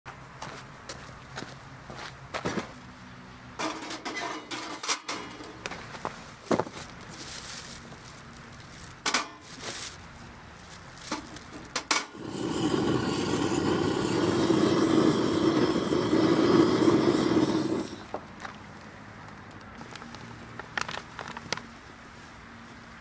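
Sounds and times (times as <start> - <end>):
handling clicks and rustles: 3.6 - 12.1, 18.1 - 23.0
gas torch roaring: 11.7 - 18.3.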